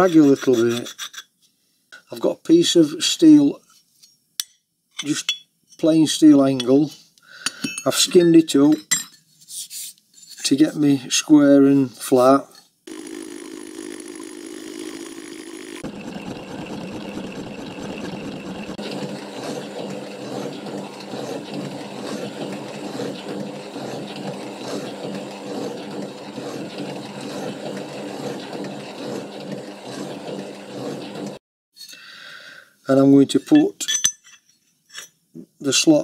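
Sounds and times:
metal shaper humming: 12.9 - 31.4
milling cutter skimming metal: 12.9 - 31.4.

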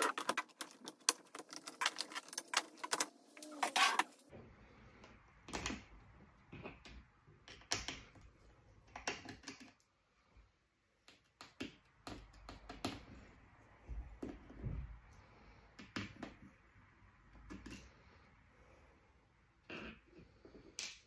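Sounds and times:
hands handling plastic laptop case: 0.0 - 4.0.

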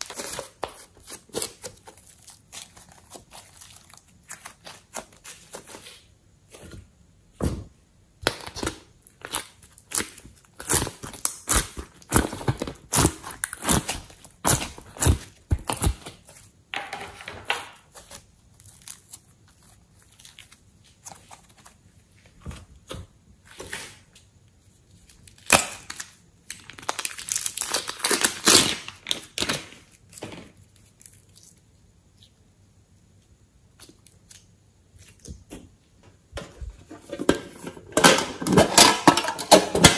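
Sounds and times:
hands squishing slime: 0.0 - 6.8, 8.2 - 16.6, 17.8 - 23.0.

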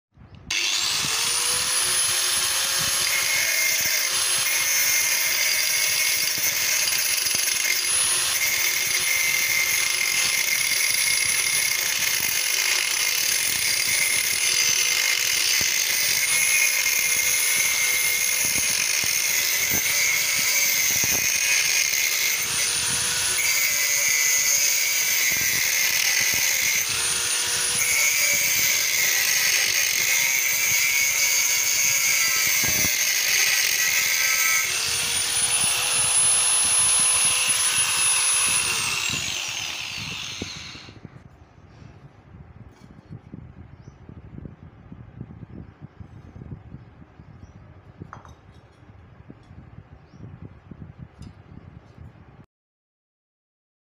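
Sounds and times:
angle grinder cutting steel: 0.5 - 41.0.

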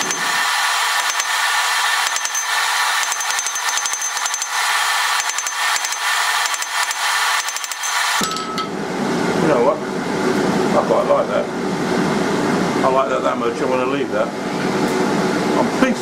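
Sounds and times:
hammer striking hot metal on anvil: 0.0 - 0.4, 2.0 - 4.6, 5.2 - 8.8
high metallic ring: 2.1 - 4.6, 7.5 - 8.9.

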